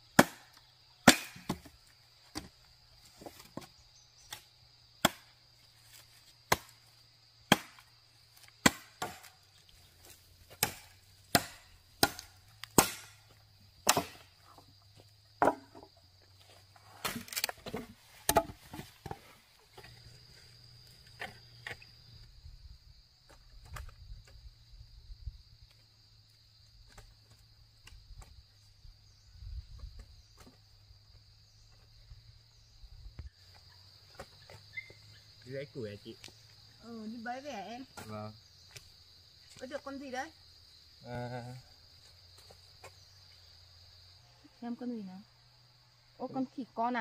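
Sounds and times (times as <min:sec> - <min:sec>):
axe chopping wood: 0:00.1 - 0:02.6, 0:04.3 - 0:05.4, 0:06.4 - 0:06.8, 0:07.5 - 0:09.4, 0:10.5 - 0:14.4, 0:15.4 - 0:15.9, 0:16.9 - 0:19.2.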